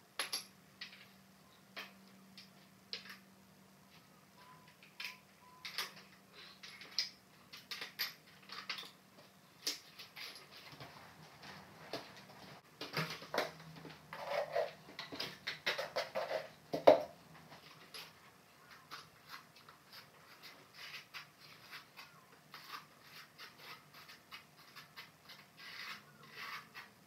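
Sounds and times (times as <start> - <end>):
trowel scraping in plastic bucket: 14.1 - 14.8, 22.6 - 27.0.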